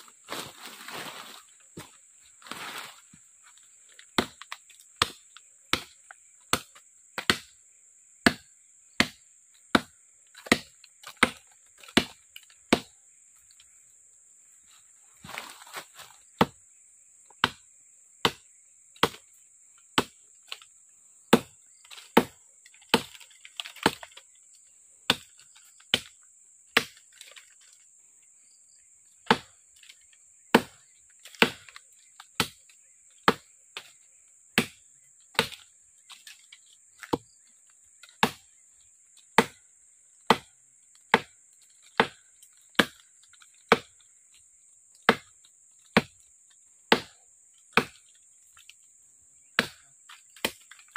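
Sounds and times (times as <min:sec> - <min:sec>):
machete chopping into wood: 0:04.1 - 0:07.5, 0:08.2 - 0:12.9, 0:16.4 - 0:16.6, 0:17.4 - 0:17.6, 0:18.2 - 0:19.3, 0:20.0 - 0:20.7, 0:21.3 - 0:24.2, 0:26.8 - 0:27.6, 0:29.2 - 0:34.0, 0:34.6 - 0:36.4, 0:37.0 - 0:37.4, 0:38.0 - 0:38.6, 0:39.4 - 0:39.6, 0:40.3 - 0:44.0, 0:45.1 - 0:45.3, 0:45.9 - 0:46.2, 0:46.9 - 0:48.0, 0:49.4 - 0:50.9.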